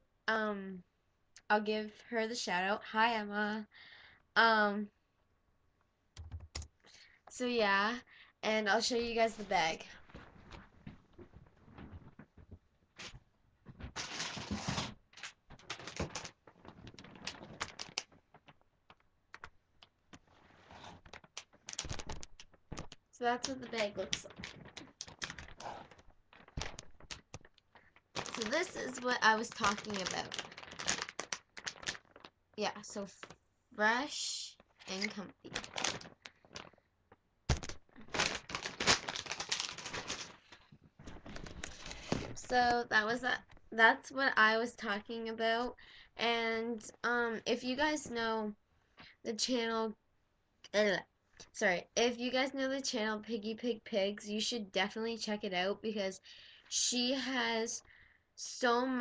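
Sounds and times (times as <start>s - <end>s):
plastic bag crinkling and rustling: 13.7s - 33.4s, 34.5s - 42.8s
sharp crackles and clicks: 15.1s - 33.4s, 34.4s - 42.7s.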